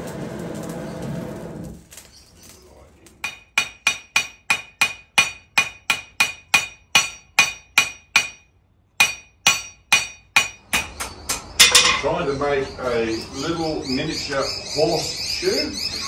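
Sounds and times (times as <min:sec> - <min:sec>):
hammer striking iron on anvil: 0:03.2 - 0:12.1.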